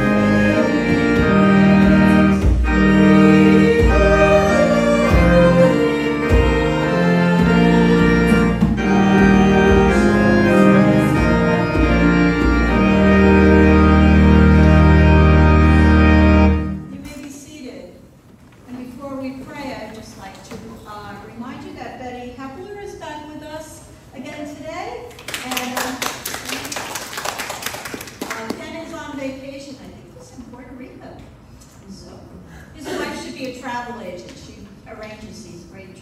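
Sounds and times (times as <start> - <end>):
organ playing a hymn: 0.0 - 16.9.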